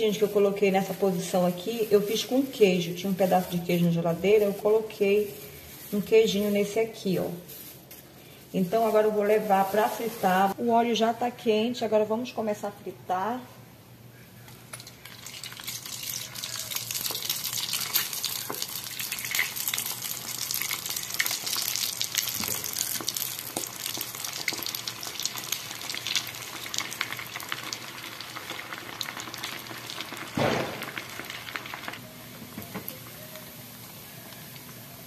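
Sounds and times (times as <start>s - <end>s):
food deep-frying in oil: 14.8s - 35.0s.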